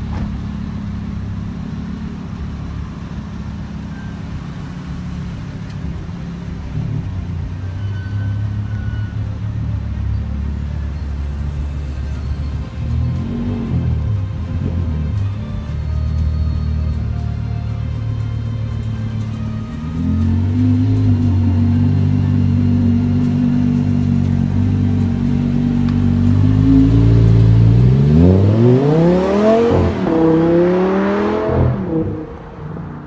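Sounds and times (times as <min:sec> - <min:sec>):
car engine idling: 0:00.0 - 0:07.8, 0:08.4 - 0:30.9
car engine revving and accelerating: 0:12.6 - 0:17.2, 0:19.4 - 0:33.0.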